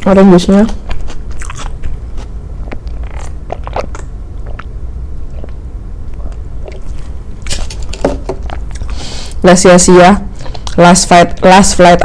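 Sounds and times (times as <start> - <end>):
steady low hum: 0.0 - 12.0
wet mouth clicks: 2.7 - 4.7
person swallowing gulps: 2.7 - 7.1.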